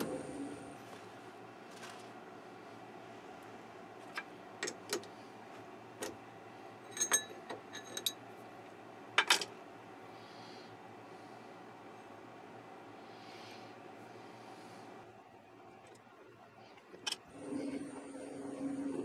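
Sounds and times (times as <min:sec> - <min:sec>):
low hum: 0:00.0 - 0:03.9.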